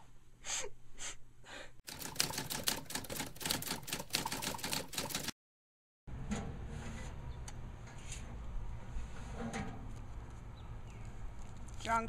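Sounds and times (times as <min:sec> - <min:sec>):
typewriter keys clacking: 0:01.9 - 0:05.3.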